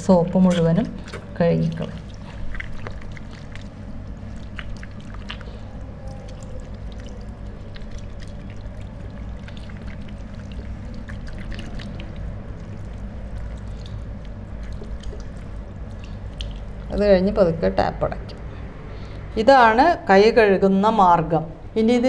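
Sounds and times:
water splashes and drips: 0:00.4 - 0:17.1.

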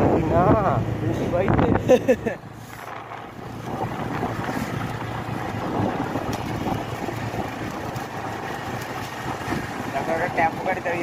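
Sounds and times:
motor scooter engine running: 0:00.0 - 0:11.0
wind buffeting microphone: 0:00.0 - 0:11.0.

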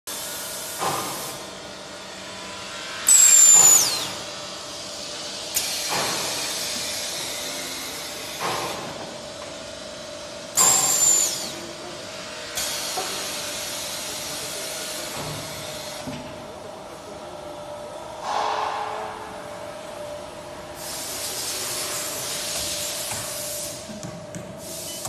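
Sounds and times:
sharp hiss of released air: 0:03.0 - 0:04.2, 0:05.5 - 0:07.4, 0:10.6 - 0:11.6, 0:18.2 - 0:19.1, 0:20.8 - 0:23.9, 0:24.6 - 0:25.0
faint air releases: 0:18.2 - 0:19.3, 0:24.6 - 0:25.0.

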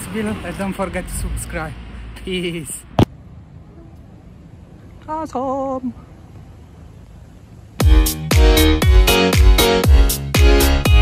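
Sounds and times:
electronic dance music: 0:07.8 - 0:11.0.

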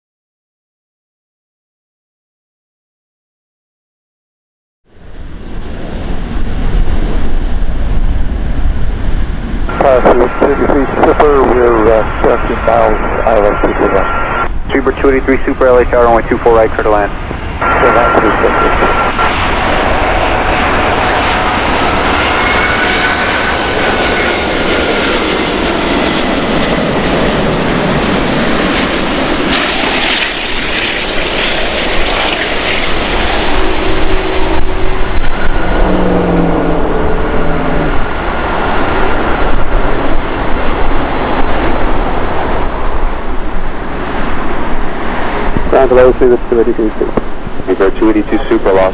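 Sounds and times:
jet engine roar: 0:04.9 - 0:48.9
high whining tones: 0:05.0 - 0:48.8.

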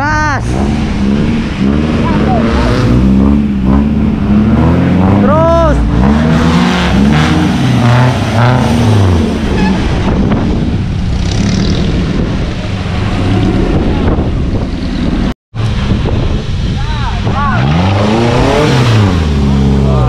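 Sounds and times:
off-road vehicle engine revving: 0:00.0 - 0:20.0.

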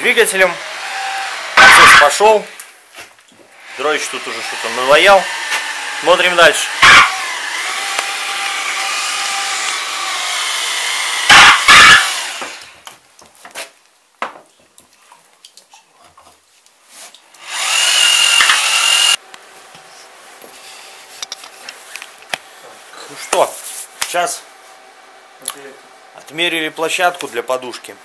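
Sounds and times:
loud harsh bursts: 0:00.0 - 0:02.7, 0:03.6 - 0:12.8, 0:17.4 - 0:19.2
power tool motor whine: 0:00.6 - 0:02.0, 0:03.6 - 0:12.8, 0:17.4 - 0:19.2.

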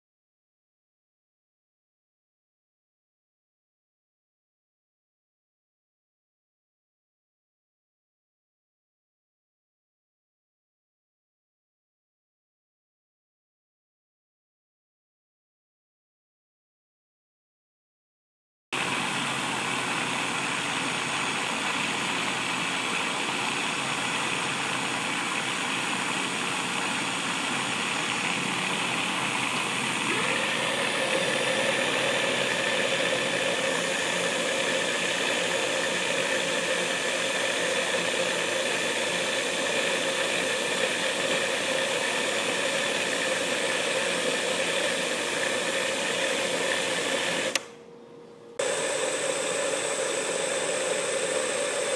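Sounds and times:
blender motor grinding: 0:18.8 - 0:47.7, 0:48.6 - 0:51.9.

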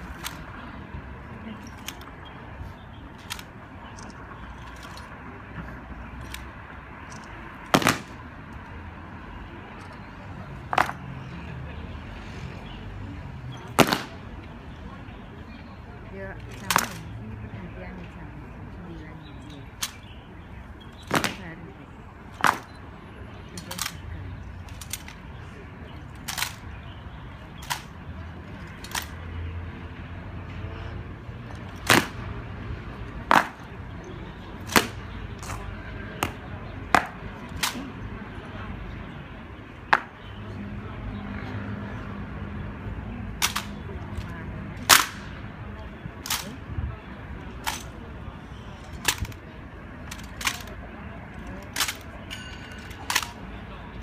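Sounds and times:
low crowd murmur: 0:00.0 - 0:54.0
rifles being slapped: 0:37.0 - 0:37.9, 0:43.4 - 0:43.8, 0:44.8 - 0:45.3, 0:49.0 - 0:49.4, 0:53.0 - 0:53.4
rifles struck sharply: 0:44.8 - 0:45.3.

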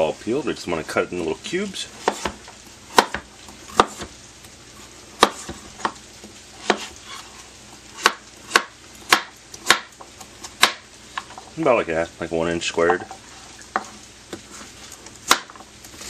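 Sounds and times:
knife chopping on plastic board: 0:02.0 - 0:04.1, 0:05.2 - 0:06.0, 0:06.6 - 0:06.9, 0:08.0 - 0:09.9, 0:10.5 - 0:10.8, 0:15.2 - 0:15.5.

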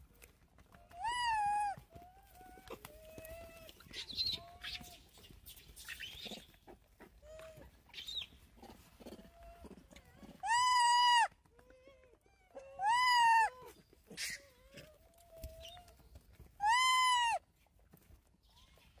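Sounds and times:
macaque shrill cry: 0:01.0 - 0:01.8, 0:10.4 - 0:11.3, 0:12.8 - 0:13.6, 0:16.6 - 0:17.4
macaques cooing: 0:08.6 - 0:11.3.

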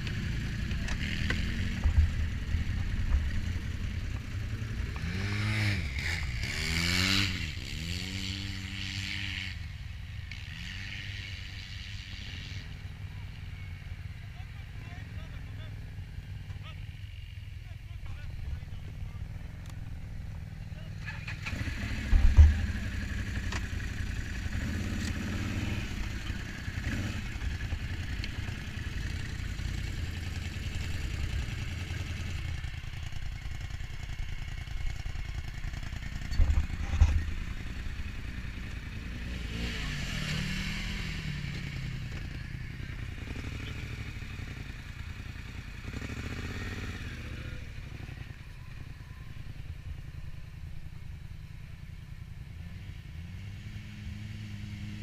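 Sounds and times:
engine revving: 0:00.0 - 0:09.7, 0:10.3 - 0:12.8, 0:20.6 - 0:48.5, 0:52.5 - 0:55.0
quad bike engines idling: 0:00.0 - 0:55.0
quad bike throttle bursts: 0:04.4 - 0:09.6, 0:20.8 - 0:50.1.

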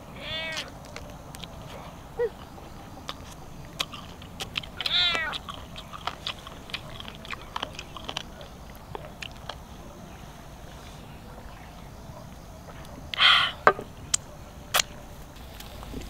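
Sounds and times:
person chewing and licking fingers: 0:00.6 - 0:01.8, 0:02.4 - 0:09.7.

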